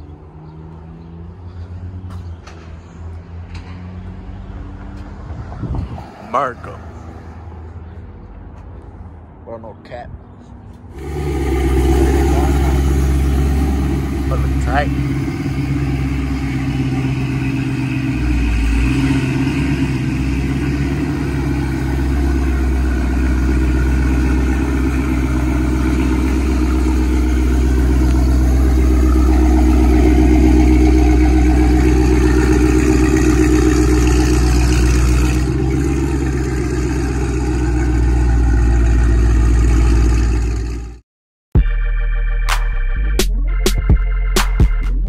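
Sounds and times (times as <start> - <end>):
car engine idling: 10.9 - 41.0
low exhaust note: 10.9 - 41.0.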